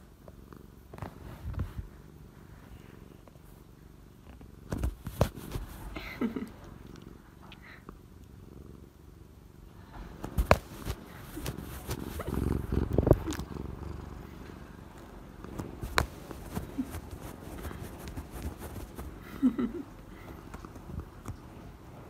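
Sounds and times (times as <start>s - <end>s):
cat purring: 0.0s - 22.0s
rubbing and knocking on phone: 4.7s - 5.9s, 10.2s - 12.5s, 15.5s - 19.2s.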